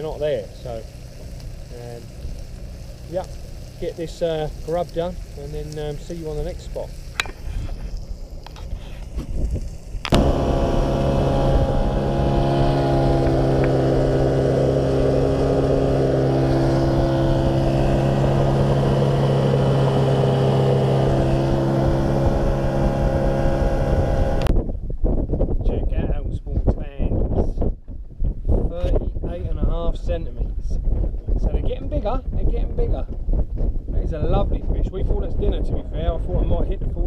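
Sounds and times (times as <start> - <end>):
water rushing and spraying: 0.0 - 24.5
outboard motor running: 10.0 - 24.5.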